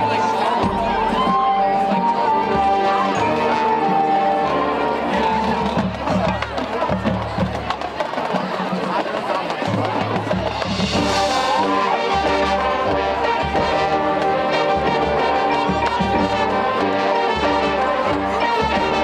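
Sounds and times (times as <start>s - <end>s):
marching band playing: 0.0s - 19.0s.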